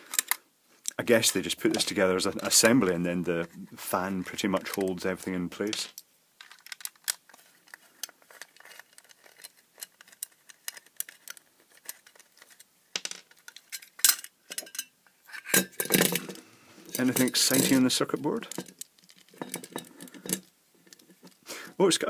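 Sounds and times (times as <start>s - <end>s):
screwdriver and metal parts clinking: 13.3s - 21.4s.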